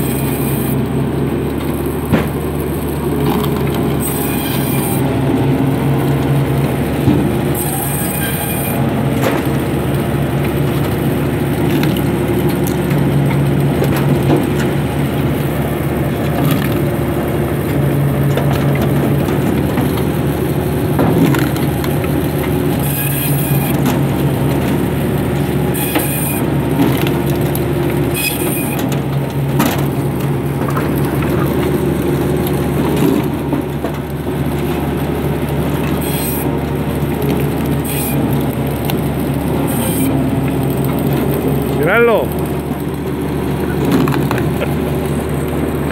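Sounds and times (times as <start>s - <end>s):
band saw humming: 0.0s - 29.4s, 34.6s - 45.9s
saw blade rasping wood: 4.0s - 5.1s, 7.6s - 8.9s, 22.8s - 23.8s, 25.8s - 26.4s, 28.2s - 28.8s, 36.0s - 36.5s, 37.8s - 38.2s, 39.6s - 40.2s.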